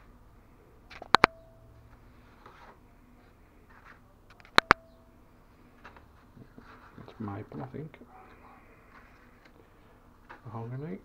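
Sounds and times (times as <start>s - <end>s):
sharp double clicks: 0.9s - 1.4s, 4.3s - 4.9s
brief ringing tone: 1.2s - 1.8s
wood veneer sheets rustling: 6.0s - 7.8s.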